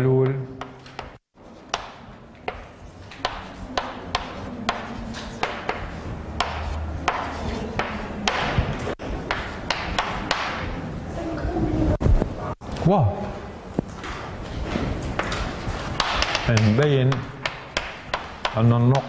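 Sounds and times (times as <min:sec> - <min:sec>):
chalk tapping and scratching: 0:00.6 - 0:10.8, 0:15.2 - 0:19.0.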